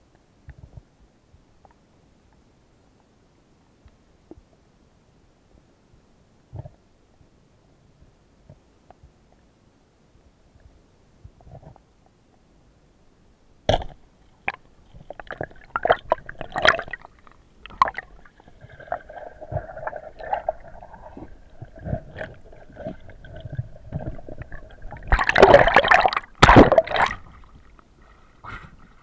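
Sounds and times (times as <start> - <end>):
steady hum: 12.6 - 29.0
water splashing and sloshing: 13.7 - 29.0.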